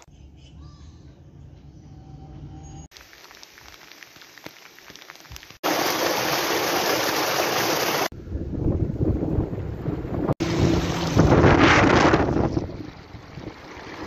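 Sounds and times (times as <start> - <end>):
stream rushing over rocks: 5.6 - 8.1
wind rumble on microphone: 8.1 - 14.0.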